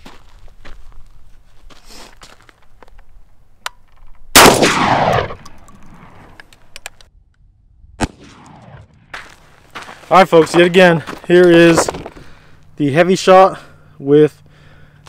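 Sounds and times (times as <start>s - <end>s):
shotgun shot: 4.4s - 6.3s, 8.0s - 9.2s.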